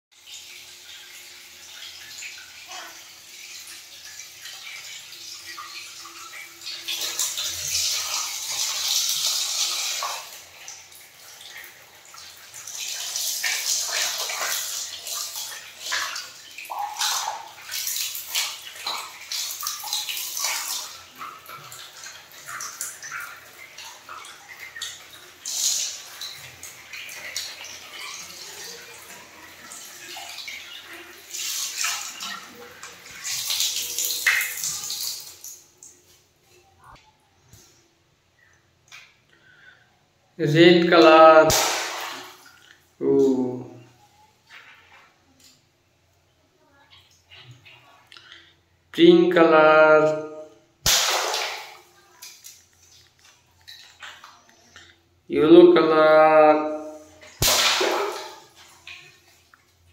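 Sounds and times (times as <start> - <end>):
water running and splashing: 0.1 - 36.2, 41.5 - 43.4, 50.8 - 54.8, 56.7 - 59.9.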